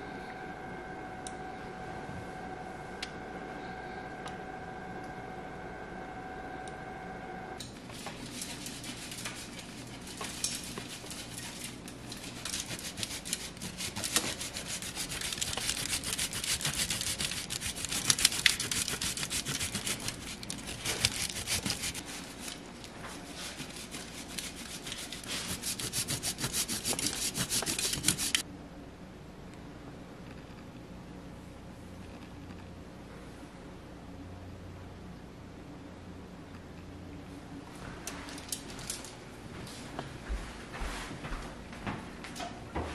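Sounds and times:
cheese grated on metal grater: 0:08.2 - 0:28.4.

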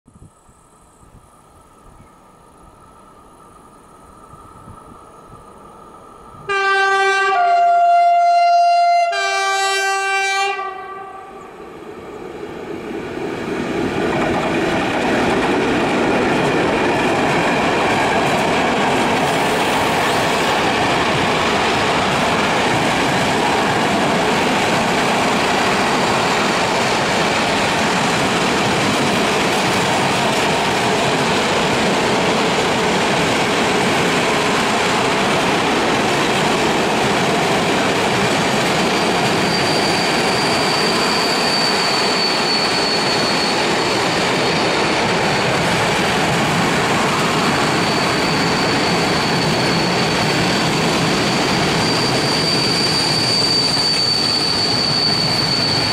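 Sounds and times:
locomotive horn: 0:06.5 - 0:11.5
train wheels rolling on rails: 0:11.4 - 0:55.9.

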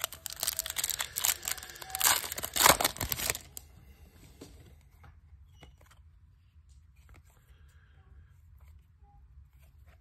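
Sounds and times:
foil wrapper crinkling: 0:00.0 - 0:03.6.

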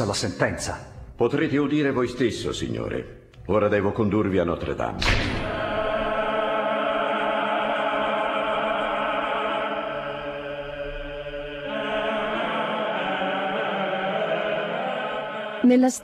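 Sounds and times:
choir singing held chords: 0:05.0 - 0:16.0.

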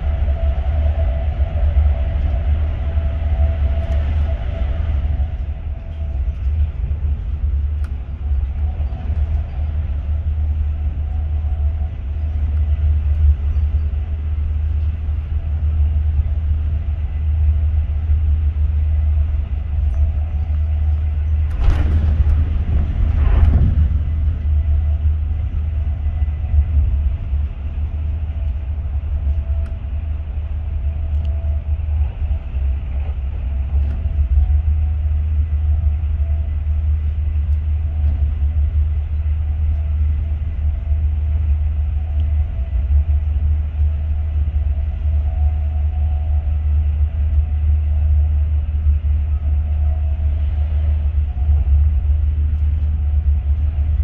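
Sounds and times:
faint steady tone: 0:00.0 - 0:54.0
train wheels rumbling on track: 0:00.0 - 0:54.0
rushes of noise: 0:16.9 - 0:54.0.

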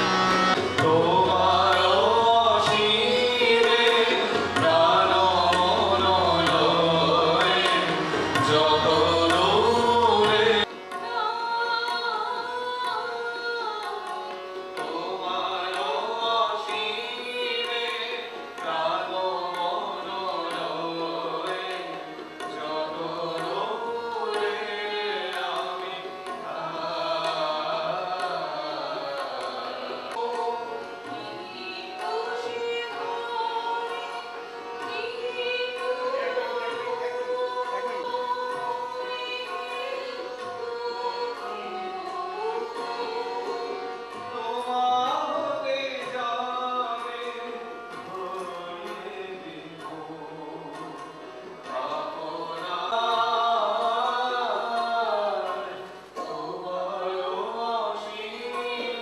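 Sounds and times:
voices singing: 0:00.0 - 0:10.7
harmonium: 0:00.0 - 0:59.0
tabla beat: 0:00.0 - 0:59.0.

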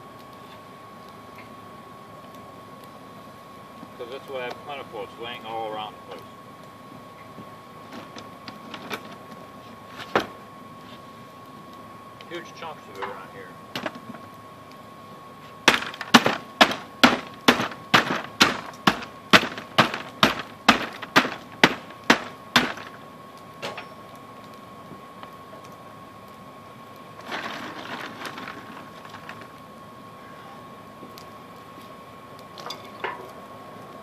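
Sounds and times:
hand tool breaking coal: 0:15.6 - 0:23.0, 0:27.2 - 0:29.5
rattling rustle: 0:27.2 - 0:29.5.

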